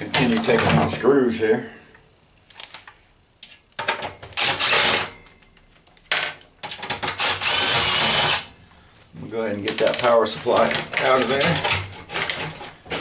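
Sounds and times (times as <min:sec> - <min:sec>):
cordless drill running: 0:07.2 - 0:08.5.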